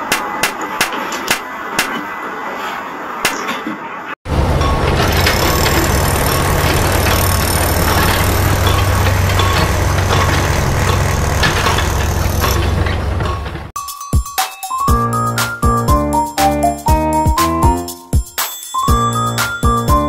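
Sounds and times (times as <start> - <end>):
scalp massager motor buzzing: 5.1 - 12.6.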